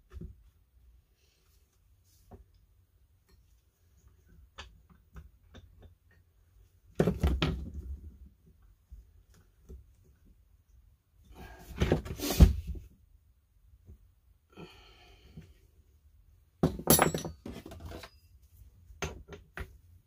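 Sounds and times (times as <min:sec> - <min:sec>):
metal tools clattering on workbench: 0:16.6 - 0:18.3.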